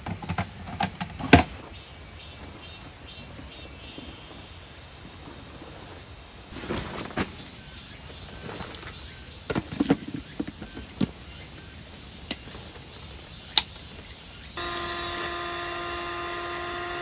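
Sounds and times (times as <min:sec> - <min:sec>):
valve and pump clicks: 0:13.6 - 0:17.0
electric air pump humming: 0:14.6 - 0:17.0.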